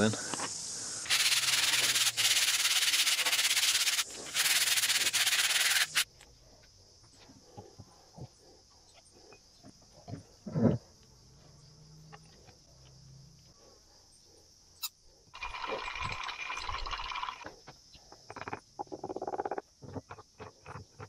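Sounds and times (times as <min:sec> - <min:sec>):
stirring clinks in glass jar: 0:15.4 - 0:17.4.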